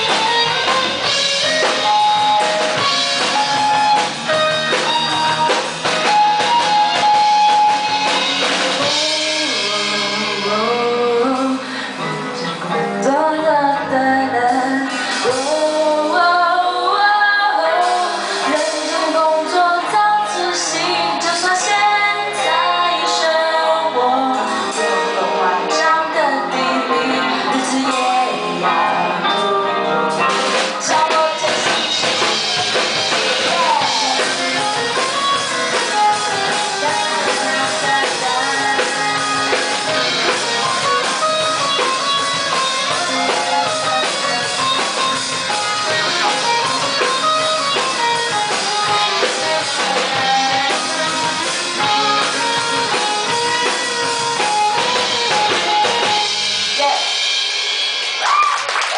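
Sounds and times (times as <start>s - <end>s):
drum kit: 0.0s - 58.9s
electric guitars: 0.0s - 58.9s.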